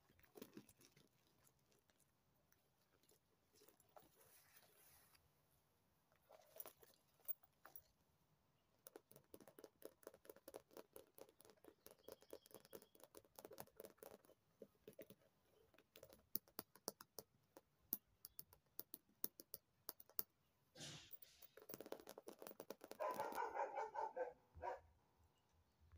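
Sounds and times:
rubbing and scratching: 2.9s - 5.3s, 8.9s - 16.6s, 20.8s - 24.8s
fingernails tapping on handbag: 8.8s - 20.3s, 21.6s - 23.6s.

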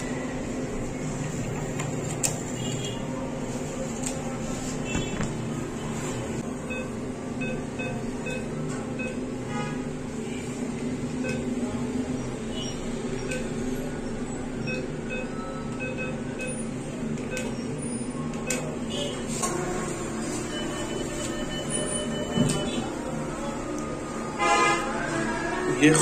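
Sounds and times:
cash machine beeps: 4.8s - 9.4s, 11.1s - 24.0s.

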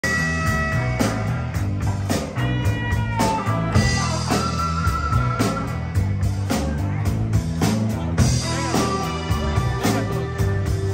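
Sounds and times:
electric guitars: 0.0s - 10.9s.

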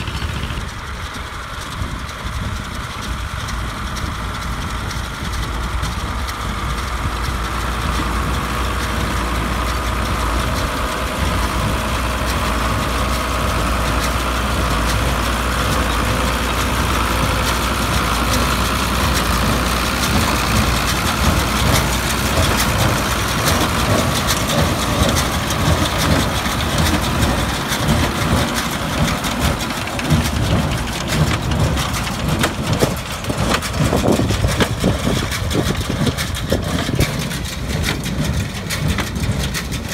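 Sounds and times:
tractor diesel engine running: 0.0s - 39.9s
baler clattering and knocking: 3.9s - 39.9s.

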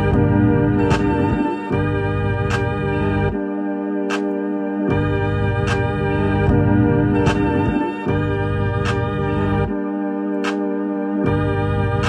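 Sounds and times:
deep bass: 0.0s - 3.4s, 4.9s - 9.8s, 11.3s - 12.0s
organ-like keyboard chords: 0.0s - 12.0s.

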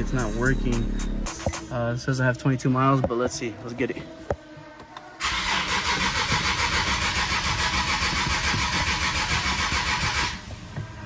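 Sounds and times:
car engine cranking: 5.2s - 10.5s.

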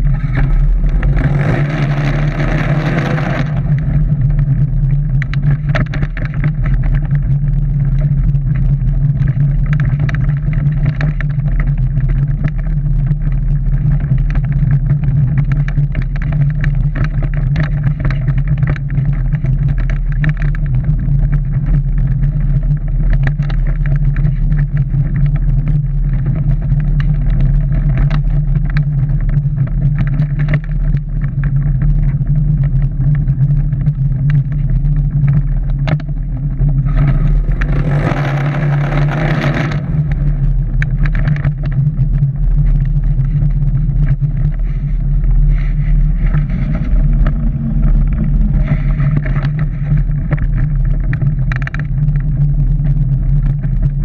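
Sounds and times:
rushing noise: 0.0s - 6.7s, 35.4s - 50.8s
car interior low drone: 0.0s - 54.0s
small knocks and rattles: 0.0s - 54.0s.

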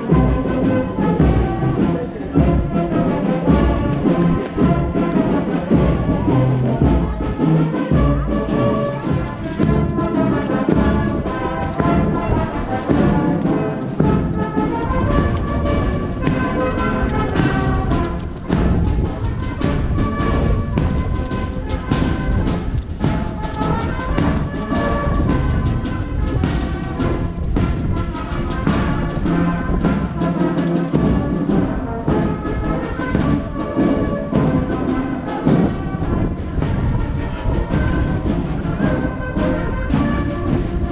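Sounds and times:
brass band playing: 0.0s - 40.9s
drum beats: 0.0s - 40.9s.

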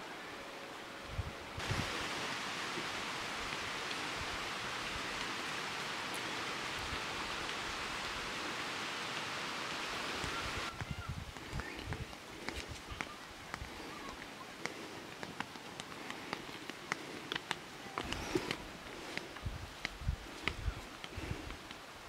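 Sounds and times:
wind thumps on microphone: 1.2s - 2.2s, 10.2s - 13.7s, 19.4s - 21.6s
footsteps on dirt path: 10.2s - 21.9s.

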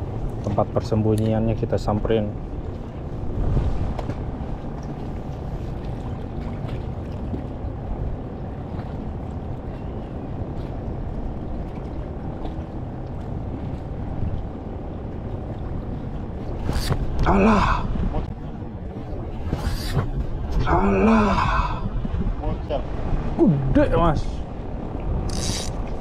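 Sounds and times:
choppy water around boat: 0.0s - 26.0s
wind rumble: 0.0s - 26.0s.

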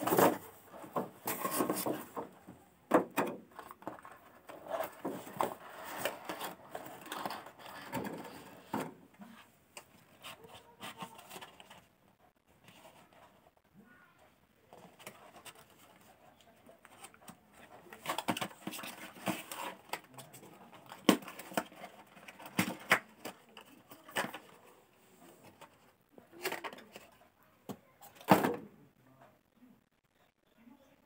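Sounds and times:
cardboard packaging rustling: 0.0s - 2.4s, 3.0s - 9.0s, 14.8s - 24.7s.

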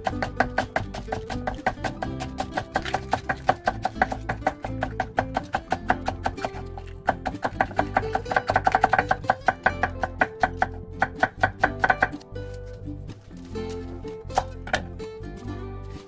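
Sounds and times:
knife shredding cabbage on board: 0.0s - 15.0s.

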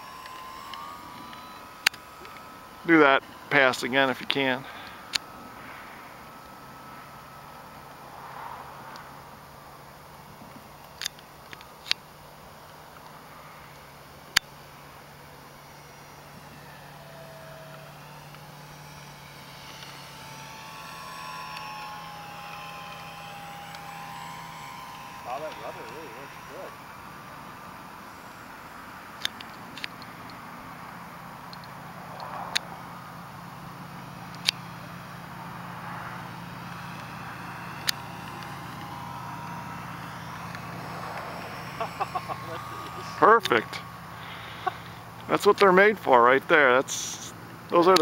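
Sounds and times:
model plane motor whining: 0.0s - 48.0s
sharp click: 34.3s - 34.6s.

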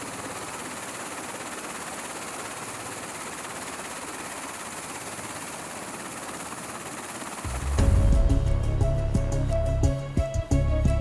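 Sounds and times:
helicopter turbine and rotor: 0.0s - 11.0s.

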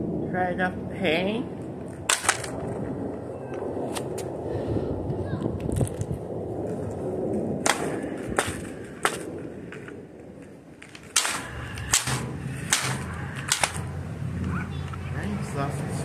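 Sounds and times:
sharp cracks: 1.8s - 3.2s, 5.5s - 15.0s
low steady hum: 7.0s - 16.0s.

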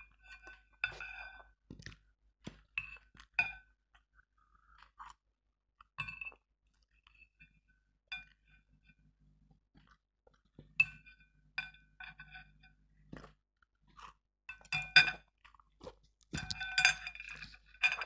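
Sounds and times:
chewing: 1.7s - 5.2s, 9.8s - 10.7s, 13.1s - 14.2s, 15.2s - 18.0s
chopsticks clinking on ceramic bowl: 16.4s - 18.0s.

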